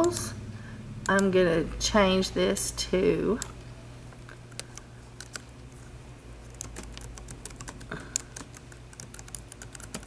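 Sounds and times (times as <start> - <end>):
typing on a keyboard: 4.6 - 5.4, 6.5 - 10.0.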